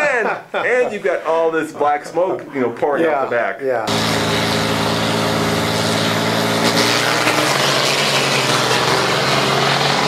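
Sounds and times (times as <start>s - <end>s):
diesel truck engines racing: 3.9s - 10.0s.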